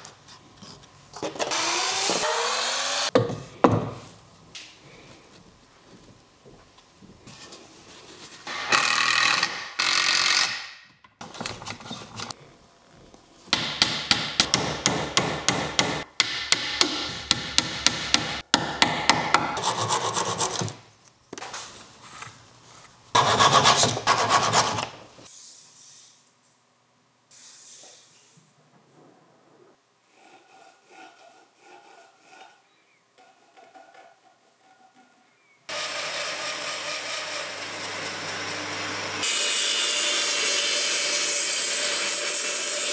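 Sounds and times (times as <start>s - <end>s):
bandsaw cutting wood: 1.4s - 3.1s, 35.7s - 42.9s
hand tool scraping wood: 30.1s - 35.3s.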